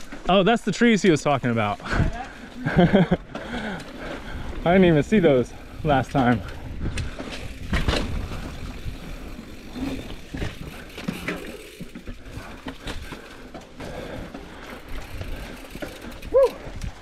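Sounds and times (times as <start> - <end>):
bike tyre and trail noise: 0.0 - 17.0
bike knocks and rattles: 6.2 - 17.0.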